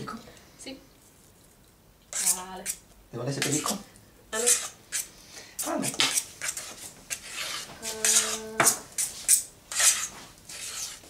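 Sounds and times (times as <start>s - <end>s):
utensil scraping batter in pot: 2.1s - 3.8s, 4.4s - 11.0s.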